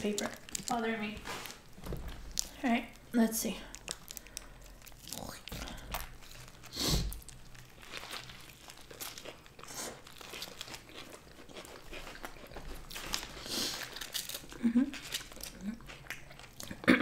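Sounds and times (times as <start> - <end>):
paper wrappers crinkling: 0.0 - 11.2, 11.9 - 15.5
chewing and crunching: 0.0 - 16.9.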